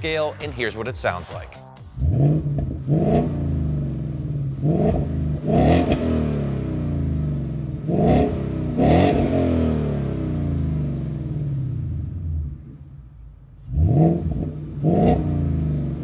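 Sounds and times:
car engine idling: 0.0 - 16.0
engine revving: 1.8 - 16.0.

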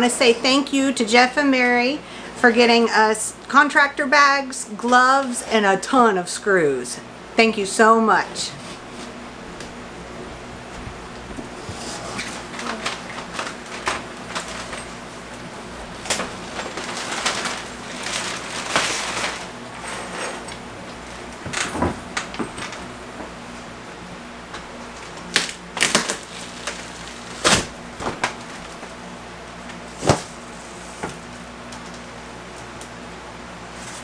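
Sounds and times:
drywall scraping and cracking: 15.9 - 20.6, 24.9 - 28.9.

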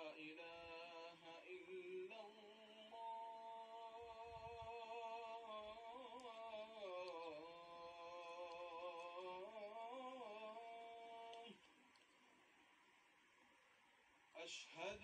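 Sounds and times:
person humming a chant: 0.0 - 11.6.

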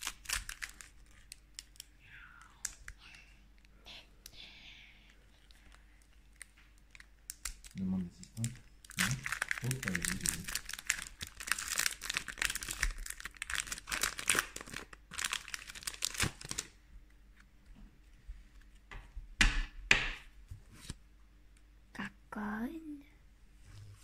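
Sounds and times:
foil pack tearing and crinkling: 0.0 - 1.9, 8.4 - 16.7.

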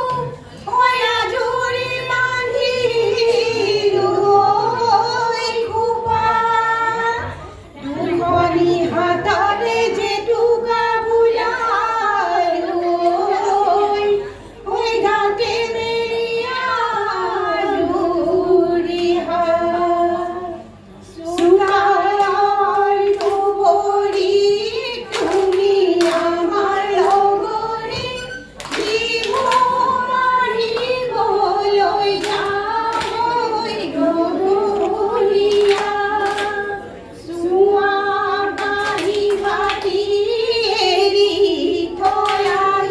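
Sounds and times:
women singing folk song: 0.0 - 42.9
hand claps: 21.3 - 22.4, 23.0 - 24.4, 25.1 - 26.4, 27.0 - 30.0, 32.1 - 33.4, 34.8 - 36.7, 38.6 - 40.1, 42.0 - 42.9.

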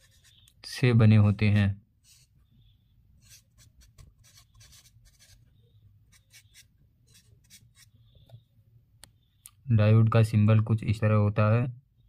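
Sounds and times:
marker scratching on paper: 0.0 - 0.5, 2.0 - 2.4, 3.2 - 5.5, 6.1 - 8.0.

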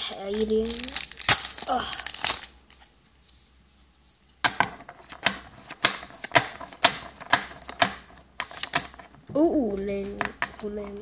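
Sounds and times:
foil wrapper crinkling: 0.0 - 3.0.

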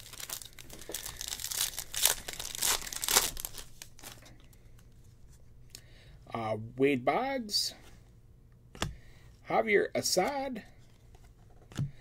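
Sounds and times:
foil wrapper crinkling and tearing: 0.0 - 4.3.

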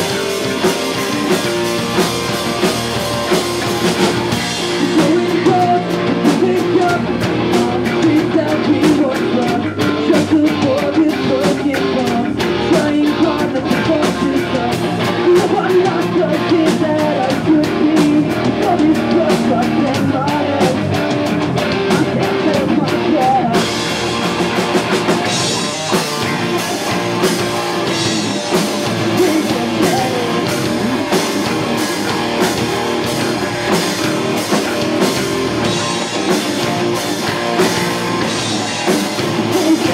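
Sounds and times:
live pop-punk band playing: 0.0 - 39.9
person singing: 4.6 - 21.1, 21.7 - 23.9, 27.9 - 31.5, 38.6 - 39.9.

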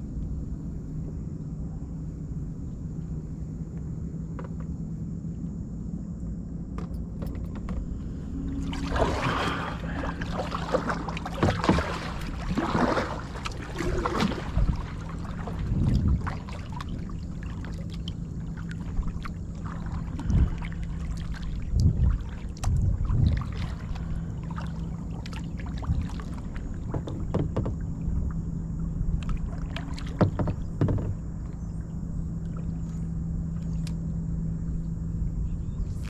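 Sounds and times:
low hum and rumble: 0.0 - 36.0
knocks against kayak hull: 11.2 - 12.9, 26.9 - 27.8, 30.0 - 31.2.

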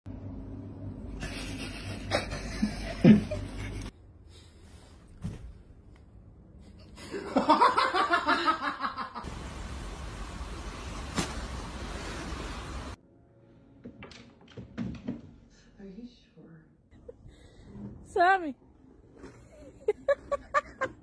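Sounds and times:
person laughing: 1.2 - 3.9, 19.5 - 21.0.

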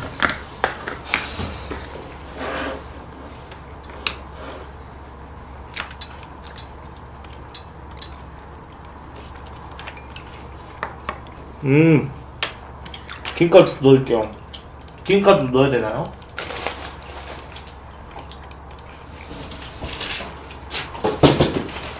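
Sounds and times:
chopsticks clinking against bowls: 6.0 - 8.2, 9.8 - 10.4.

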